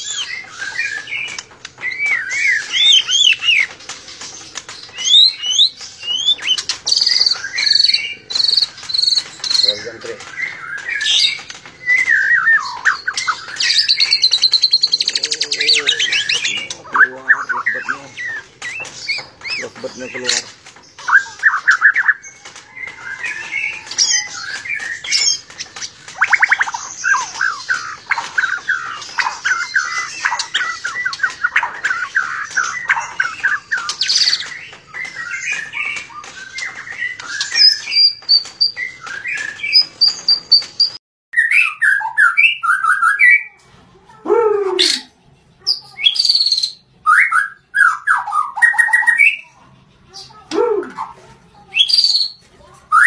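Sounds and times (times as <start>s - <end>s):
bird singing trills and whistles: 0.0s - 43.6s, 45.7s - 49.6s, 50.2s - 53.0s.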